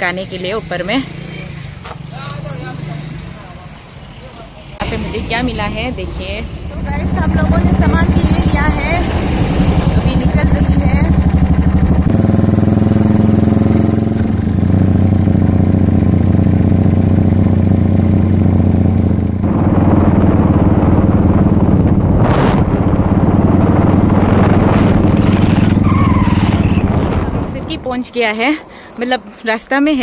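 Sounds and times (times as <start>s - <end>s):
motorcycle engine running: 4.8s - 28.0s
wind noise on microphone: 19.3s - 28.1s.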